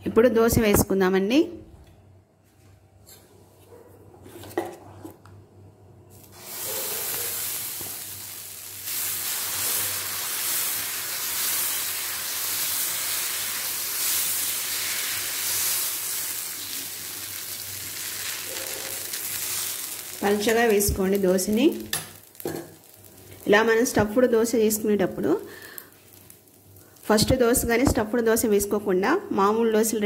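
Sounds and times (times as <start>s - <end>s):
batter sizzling on griddle: 6.1s - 24.2s, 25.5s - 27.7s.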